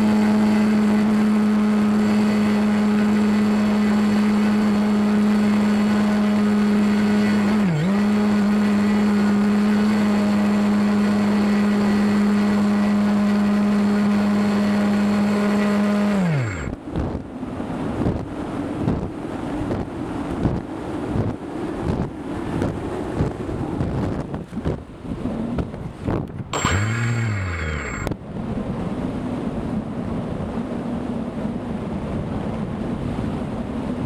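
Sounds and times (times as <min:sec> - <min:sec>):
model plane motor and propeller: 0:00.0 - 0:17.3, 0:21.8 - 0:28.2
gusty wind on microphone: 0:00.0 - 0:34.0.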